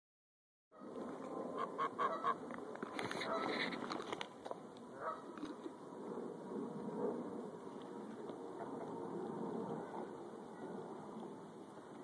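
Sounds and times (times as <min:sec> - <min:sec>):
geese honking: 0:01.6 - 0:02.4.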